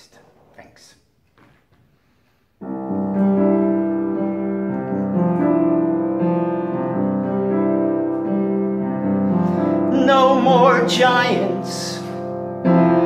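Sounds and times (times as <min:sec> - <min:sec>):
slow piano chords: 0:02.6 - 0:13.0.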